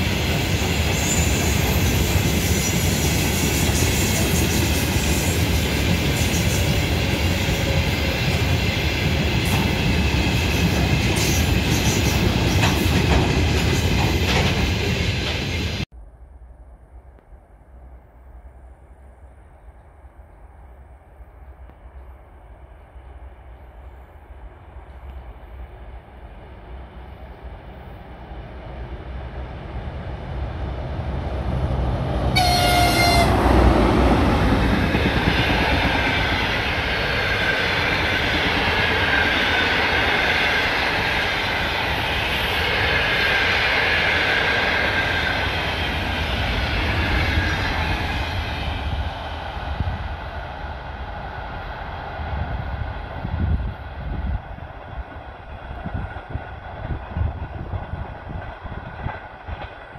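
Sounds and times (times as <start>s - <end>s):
wheel and rail noise: 0.0s - 15.8s, 17.0s - 59.9s
train passing at speed: 0.0s - 59.9s
locomotive horn blast: 32.3s - 33.7s.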